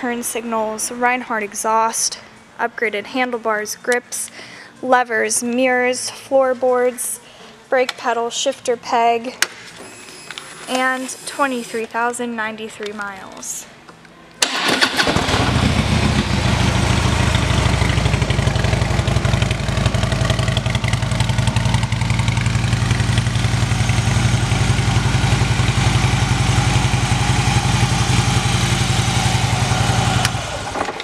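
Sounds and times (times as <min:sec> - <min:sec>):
motorcycle engine idling: 0:15.2 - 0:30.8.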